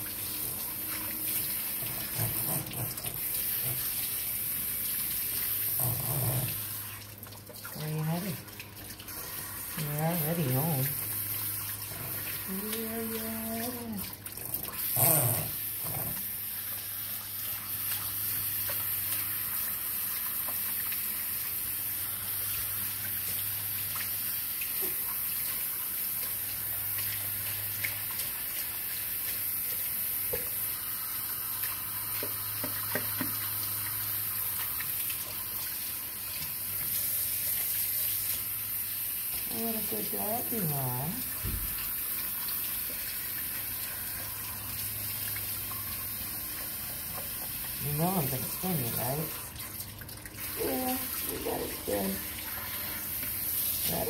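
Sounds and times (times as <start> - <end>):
water spray hissing: 50.4 - 54.0.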